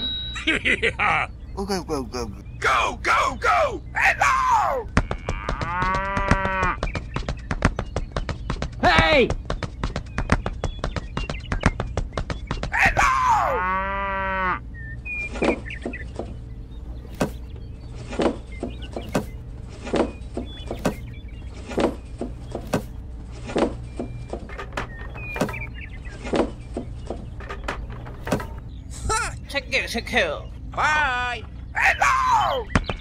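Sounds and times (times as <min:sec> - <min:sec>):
cow mooing: 0:05.0 - 0:06.8, 0:13.5 - 0:14.6.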